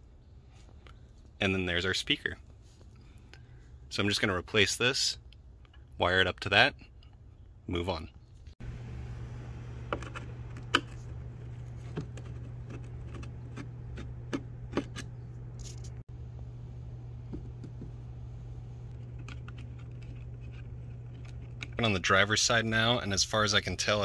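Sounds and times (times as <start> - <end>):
steady low hum: 6.7 - 24.0.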